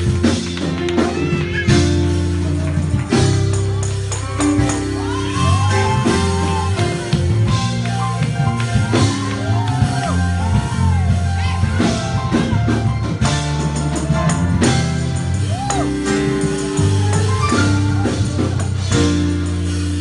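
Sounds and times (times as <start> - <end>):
drum kit beat: 0.0 - 20.0
gospel music: 0.0 - 20.0
sustained bass notes: 0.0 - 20.0.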